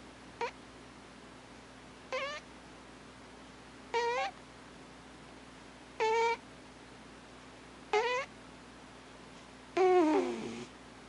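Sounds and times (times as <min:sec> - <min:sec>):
cat snoring with squeaky whistles: 0:09.8 - 0:10.7.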